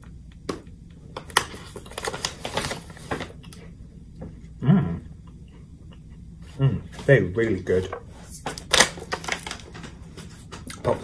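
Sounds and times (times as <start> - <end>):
foil snack packet crinkling: 1.2 - 3.5, 8.5 - 10.9
person humming mm: 4.6 - 5.1.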